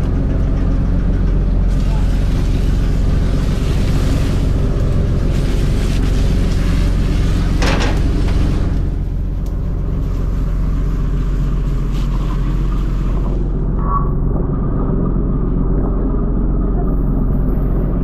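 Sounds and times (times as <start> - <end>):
boat engine rumbling: 0.0 - 18.0
hissing water wash: 1.3 - 13.6.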